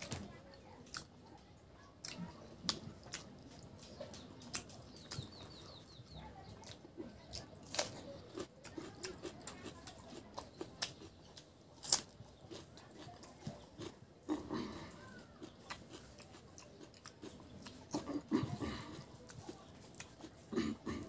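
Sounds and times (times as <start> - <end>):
wet chewing and lip smacks: 0.0 - 20.9
bird chirping: 3.4 - 8.4
crisp crunch of cucumber: 6.6 - 21.0.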